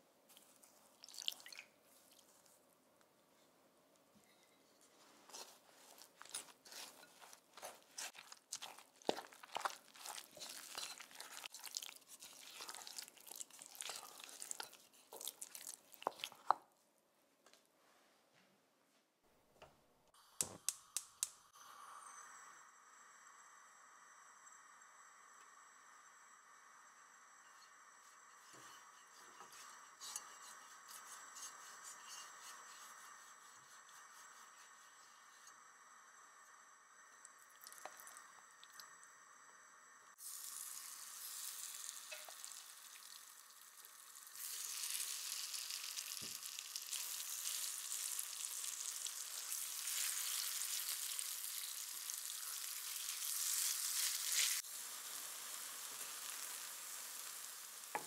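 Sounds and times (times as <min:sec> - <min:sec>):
faint steady hiss: 0:00.0 - 0:58.0
brush spreading oil in pan: 0:04.8 - 0:16.5, 0:27.4 - 0:35.6, 0:40.4 - 0:58.0
wooden spoon mashing in a bowl: 0:05.3 - 0:16.6.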